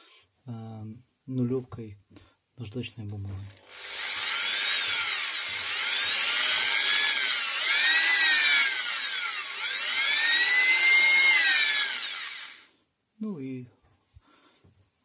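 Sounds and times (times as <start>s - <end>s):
cordless drill motor whine: 3.5s - 12.7s.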